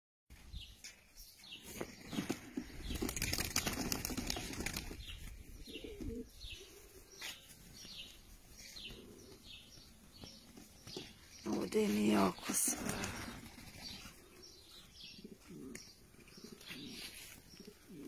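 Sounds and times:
pigeons flapping wings: 0:01.9 - 0:05.3, 0:12.7 - 0:14.1.

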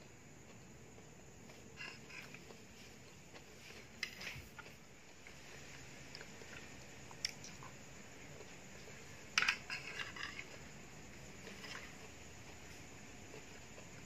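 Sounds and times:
spoon scraping plastic plate: 0:09.4 - 0:10.5.

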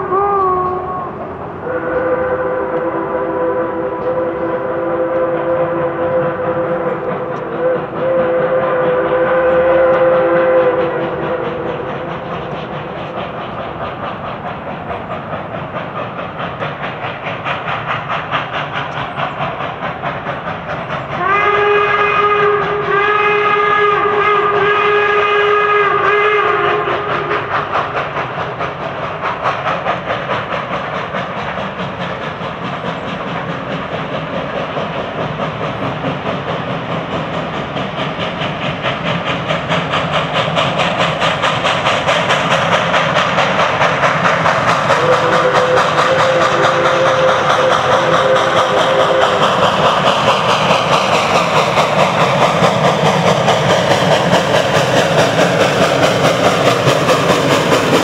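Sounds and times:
steam locomotive chuffing: 0:00.0 - 0:58.0
chime steam whistle: 0:00.2 - 0:12.6, 0:21.2 - 0:27.6, 0:44.8 - 0:50.7.

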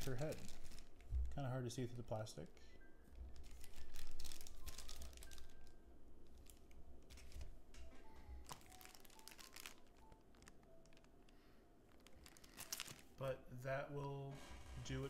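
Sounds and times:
plastic bag crinkling: 0:00.0 - 0:01.4, 0:03.1 - 0:13.2.

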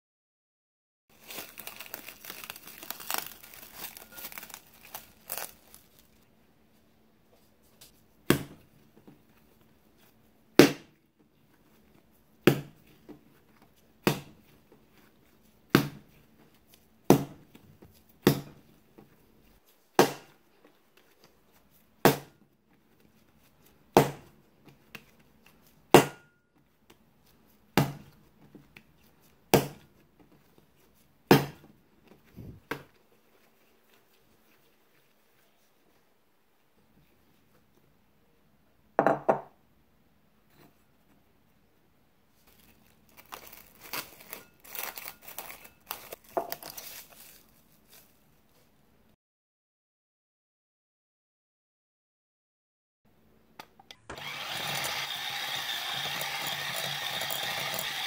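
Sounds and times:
cling film crinkling: 0:01.1 - 0:06.2, 0:42.4 - 0:48.2
dough slapped on table: 0:08.3 - 0:08.6, 0:10.6 - 0:11.0, 0:12.4 - 0:12.8, 0:14.0 - 0:14.4, 0:15.7 - 0:16.0, 0:17.1 - 0:17.4, 0:18.2 - 0:18.6, 0:20.0 - 0:20.3, 0:22.0 - 0:22.4, 0:24.0 - 0:24.3, 0:27.8 - 0:28.1, 0:29.5 - 0:29.8, 0:31.3 - 0:31.6.

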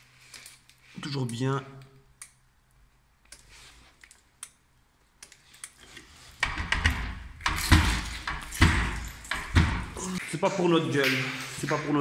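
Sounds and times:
door rattling and knocking: 0:06.4 - 0:10.1.

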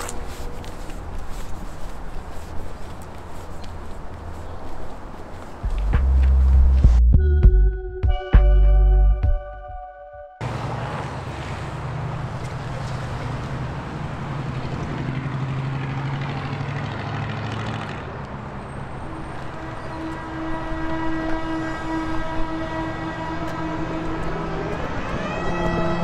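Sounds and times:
heavy vehicle engine passing: 0:10.4 - 0:26.0
loud horn tone: 0:18.9 - 0:26.0.

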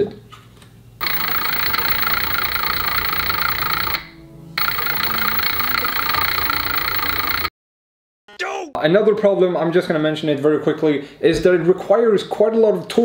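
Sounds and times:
electric motor running: 0:01.0 - 0:04.0, 0:04.6 - 0:07.5.

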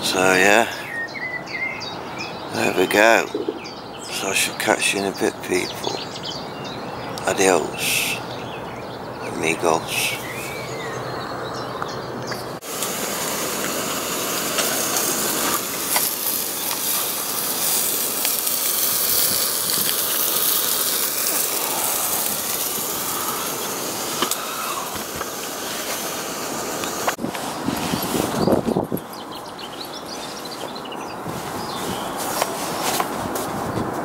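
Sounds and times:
sausages sizzling in a pan: 0:12.6 - 0:27.1.

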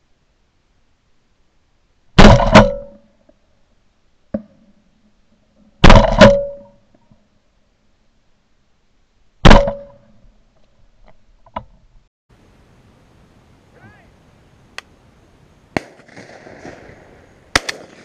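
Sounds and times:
shotgun blasts: 0:02.2 - 0:03.0, 0:05.8 - 0:06.6, 0:15.8 - 0:18.0.

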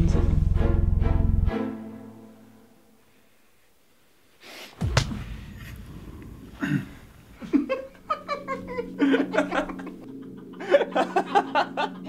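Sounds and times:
low boom: 0:04.8 - 0:07.4
low steady hum: 0:04.8 - 0:12.0
man laughing: 0:06.6 - 0:12.0.

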